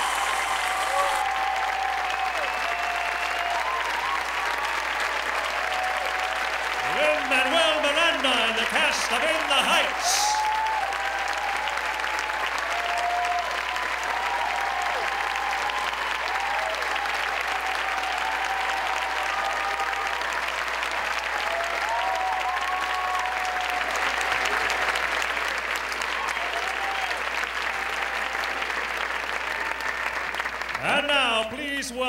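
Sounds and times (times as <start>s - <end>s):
cheers and whoops: 0.0s - 8.4s, 9.2s - 30.3s
audience applauding: 0.0s - 31.8s.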